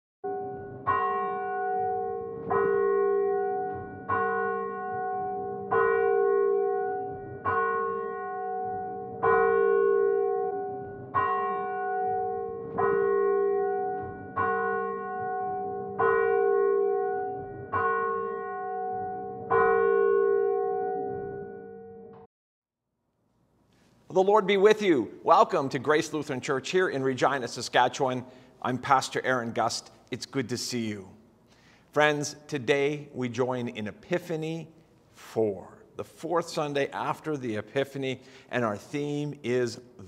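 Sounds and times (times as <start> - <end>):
church bell tolling: 0.2 - 22.3.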